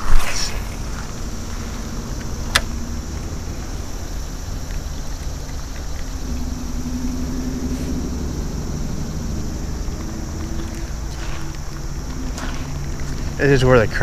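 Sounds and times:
distant engine rumble: 0.0 - 14.0.

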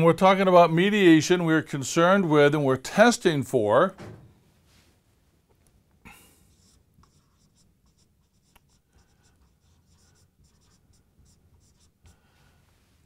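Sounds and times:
marker scratching on whiteboard: 6.5 - 12.2.

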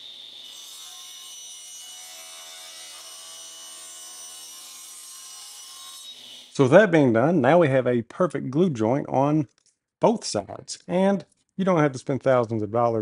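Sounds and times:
table saw cutting wood: 0.0 - 6.6.

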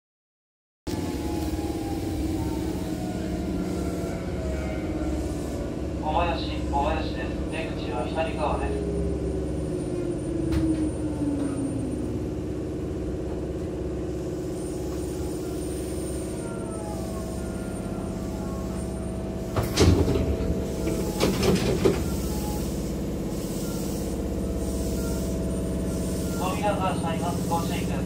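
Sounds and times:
stopped train humming: 0.9 - 28.0
burst of sliding doors: 19.4 - 24.1.

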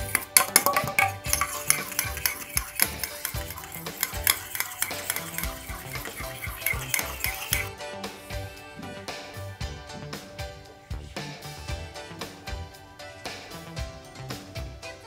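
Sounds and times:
fork clinking on metal bowl: 0.0 - 7.7.

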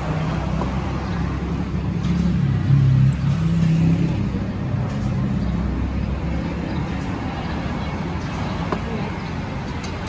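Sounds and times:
vehicle engine rumble: 0.0 - 10.0.

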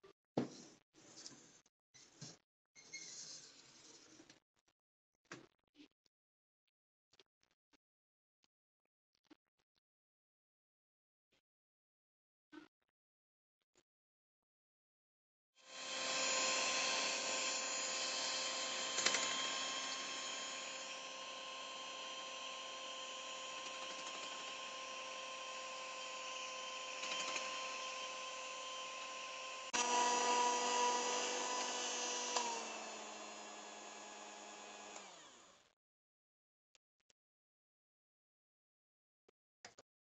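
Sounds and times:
electric hand mixer whine: 15.6 - 35.7.

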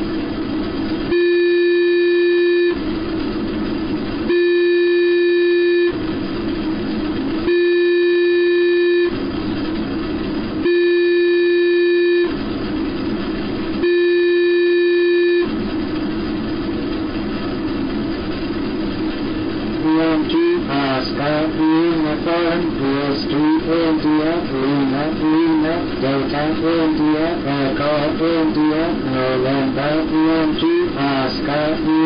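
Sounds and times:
long electronic beeps: 1.1 - 2.8, 4.3 - 6.0, 7.4 - 9.2, 10.6 - 12.4, 13.8 - 15.5, 19.8 - 32.0
radio static hiss: 7.0 - 9.5, 18.8 - 32.0.

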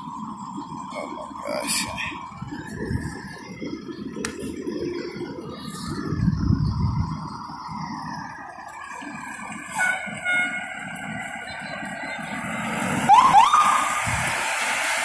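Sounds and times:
fire engine diesel engine running: 0.0 - 15.0
rising siren whoops: 13.0 - 14.2.

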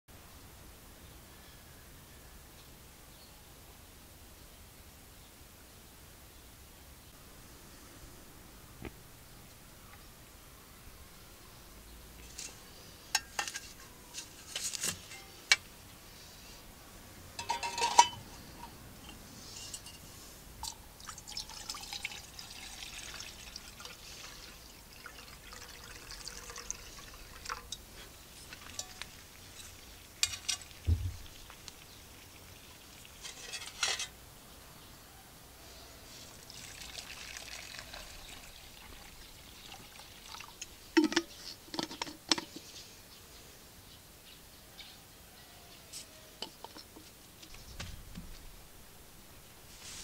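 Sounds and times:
metal mess tin clanking: 12.3 - 15.7, 17.4 - 20.8, 27.4 - 30.9, 33.2 - 34.2, 41.0 - 42.6
water pouring into mess tin: 21.0 - 27.8, 28.4 - 33.7, 36.4 - 41.2.

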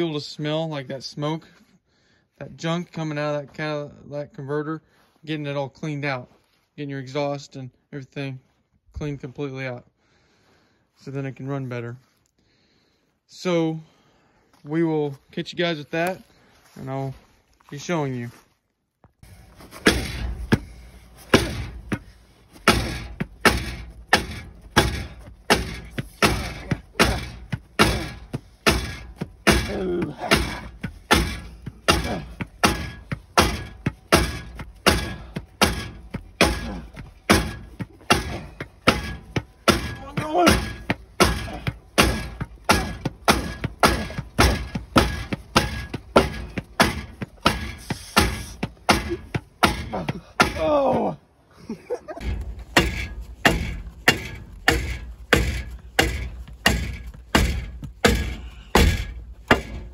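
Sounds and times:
exhaust ringing: 19.2 - 50.5
rubber mallet thudding on metal: 19.2 - 51.2, 52.2 - 59.9.

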